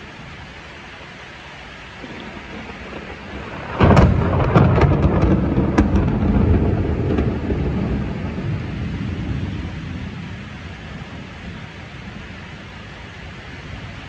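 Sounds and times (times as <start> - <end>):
close thunderclap: 2.0 - 11.3.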